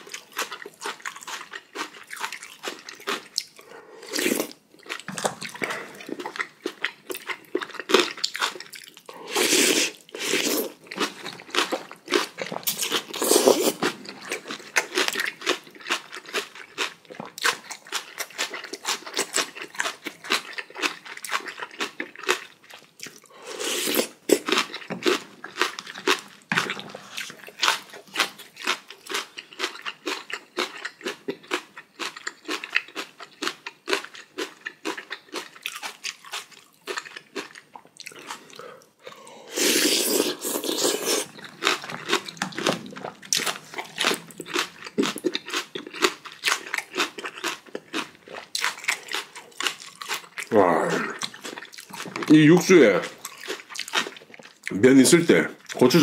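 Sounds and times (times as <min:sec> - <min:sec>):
person chewing and crunching food: 0:00.0 - 0:56.0.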